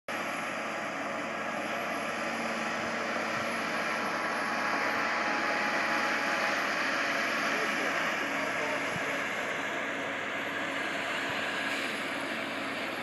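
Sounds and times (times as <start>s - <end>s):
diesel locomotive engine: 0.1s - 13.0s.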